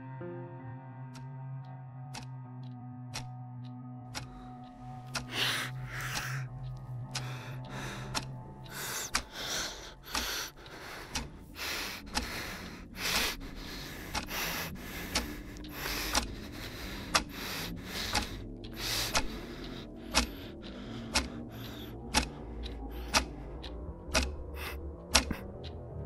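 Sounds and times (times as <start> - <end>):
man panting heavily: 5.1 - 23.4, 24.2 - 25.4.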